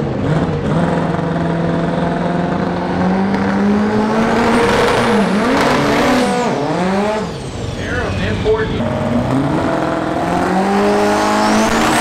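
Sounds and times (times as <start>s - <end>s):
car engine at high revs: 0.0s - 12.0s.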